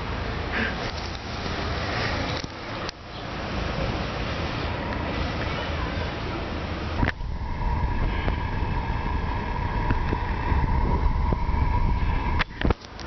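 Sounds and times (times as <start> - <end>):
steady high whine: 6.1 - 13.0
wind rumbling on microphone: 6.2 - 13.0.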